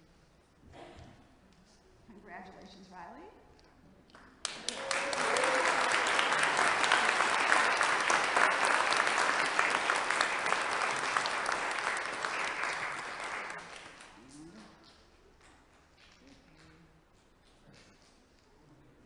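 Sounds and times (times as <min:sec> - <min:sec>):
congregation applauding: 0:04.4 - 0:14.3.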